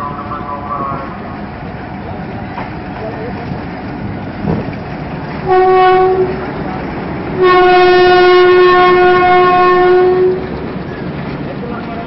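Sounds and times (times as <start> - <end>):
diesel locomotive horn: 0.0 - 1.4, 5.4 - 6.6, 7.4 - 10.6
rumble of passing train coaches: 0.0 - 12.0.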